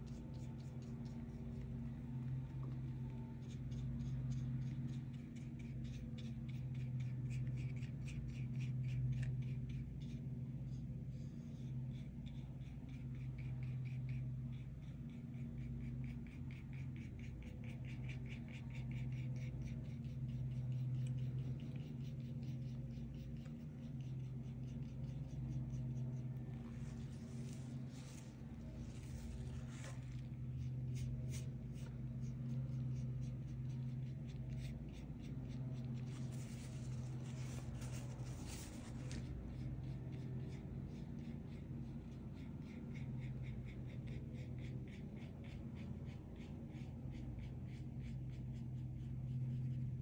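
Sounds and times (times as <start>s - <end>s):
low electrical hum: 0.0s - 50.0s
pen scratching on paper: 11.6s - 50.0s.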